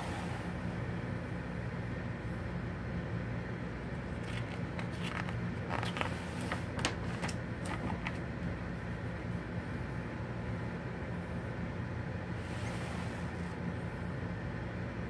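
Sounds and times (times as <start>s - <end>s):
steady low hum: 0.0s - 15.0s
magazine pages rustling: 4.0s - 8.3s.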